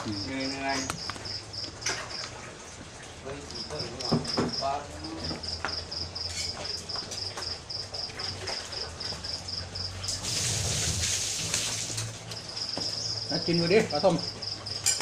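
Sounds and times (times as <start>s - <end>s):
insect chirping: 0.0s - 2.4s, 3.2s - 15.0s
loud hiss: 10.2s - 11.9s.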